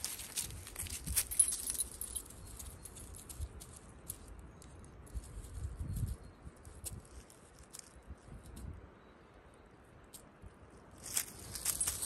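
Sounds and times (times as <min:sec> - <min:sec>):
dry leaves rustling and crackling: 0:00.0 - 0:04.3, 0:10.9 - 0:12.0.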